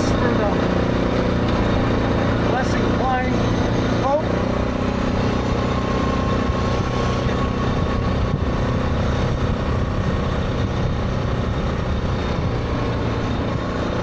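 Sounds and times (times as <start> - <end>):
atv engine running: 0.0 - 14.0
wind rushing past microphone: 5.7 - 13.6.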